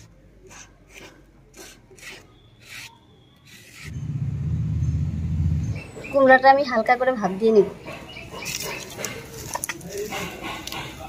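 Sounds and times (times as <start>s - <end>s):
grinding stone rasping on slab: 0.5s - 3.9s
loud low rumble: 3.9s - 5.9s.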